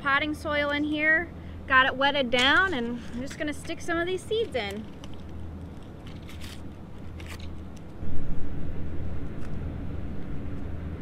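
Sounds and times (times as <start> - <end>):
low droning hum: 0.0 - 11.0
soft rustles and clicks: 2.4 - 8.0.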